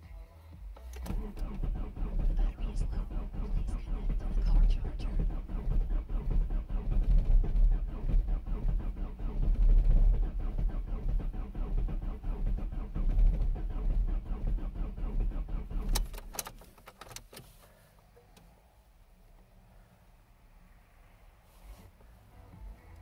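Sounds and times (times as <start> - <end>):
sharp clicks: 0.8 - 17.4
diesel engine idling clatter: 1.0 - 16.8.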